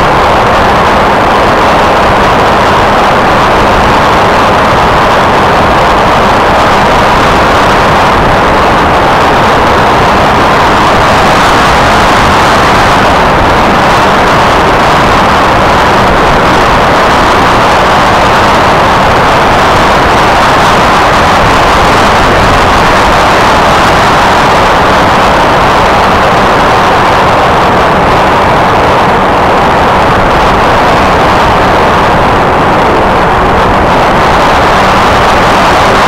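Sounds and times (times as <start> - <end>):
electric motor and propeller: 0.0 - 36.0
wind rushing: 0.0 - 36.0.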